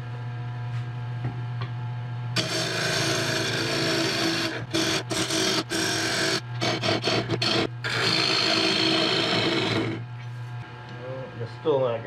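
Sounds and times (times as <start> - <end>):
gouge scraping wood: 2.4 - 10.1
wood lathe humming: 2.4 - 10.2.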